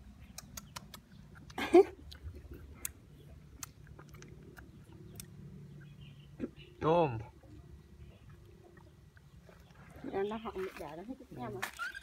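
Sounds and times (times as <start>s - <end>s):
wet smacking and licking: 0.1s - 5.9s.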